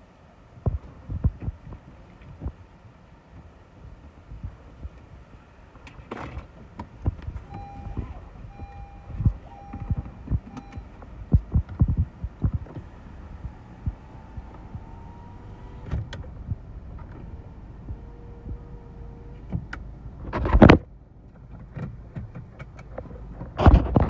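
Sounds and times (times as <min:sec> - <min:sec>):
wind buffeting microphone: 0:06.4 - 0:20.8
power window motor running: 0:06.6 - 0:20.6.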